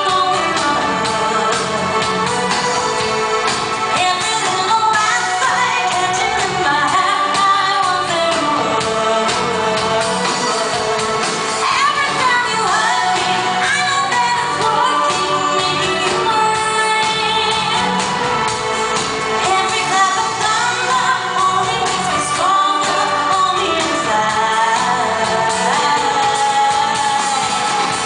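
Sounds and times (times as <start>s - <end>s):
woman singing into microphone: 0.0s - 18.4s, 19.2s - 28.0s
synth-pop band playing: 0.0s - 28.0s.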